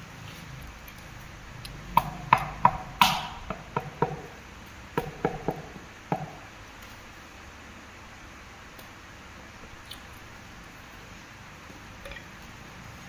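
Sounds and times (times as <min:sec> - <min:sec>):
mallet tapping wall tile: 0:02.0 - 0:04.3, 0:05.0 - 0:06.4.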